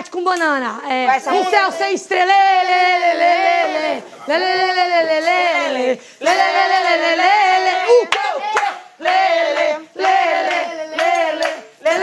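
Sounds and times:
group singing unaccompanied: 1.1 - 12.0
hand claps: 6.2 - 7.0, 7.9 - 12.0.

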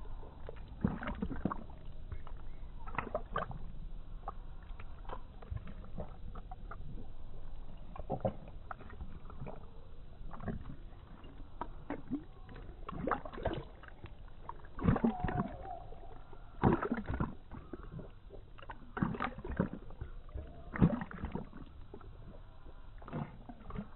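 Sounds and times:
dog lapping water: 0.0 - 23.9
water splashing: 0.0 - 23.9.

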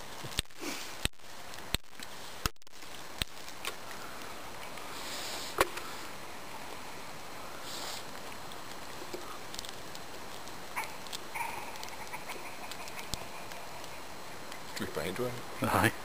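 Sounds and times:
steady hiss: 0.0 - 16.0
breathy sniff: 4.8 - 6.2, 7.4 - 8.1.

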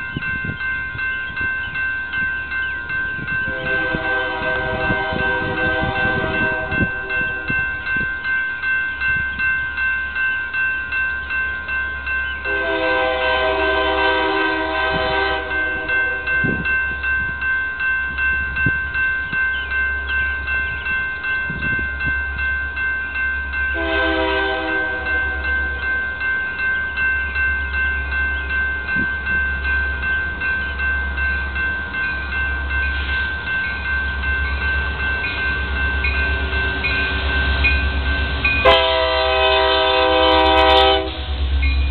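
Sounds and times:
crossing bell clanging: 0.0 - 41.9
distant train horn: 3.5 - 7.6, 12.4 - 16.6, 23.7 - 26.0, 38.6 - 41.6.

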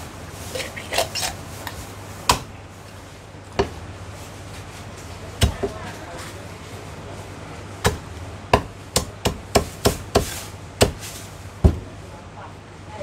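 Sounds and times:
cleaver chopping on wooden block: 7.8 - 11.0.

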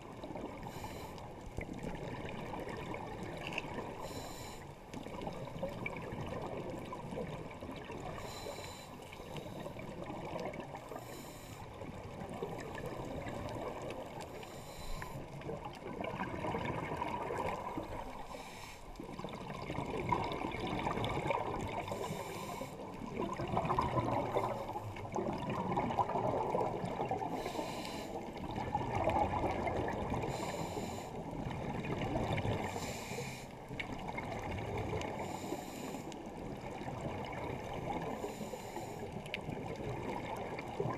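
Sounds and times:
underwater regulator breathing: 0.6 - 1.4, 3.9 - 4.8, 8.1 - 9.9, 10.8 - 11.8, 14.2 - 15.4, 17.6 - 19.1, 21.6 - 23.0, 27.2 - 28.4, 30.2 - 31.4, 32.5 - 33.6, 35.1 - 36.3, 38.0 - 39.2
exhaled bubbles: 15.3 - 18.3, 19.0 - 30.6, 31.3 - 33.0.

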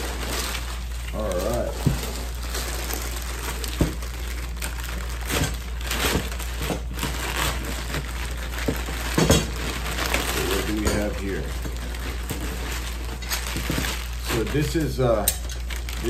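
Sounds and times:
paper and plastic crinkling: 0.0 - 16.0.

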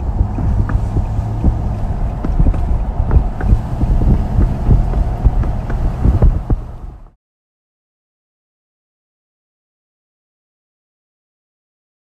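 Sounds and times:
short knocks and thumps: 0.0 - 7.1
vehicle road and engine rumble: 0.0 - 7.2
wind buffeting microphone: 0.0 - 7.2.

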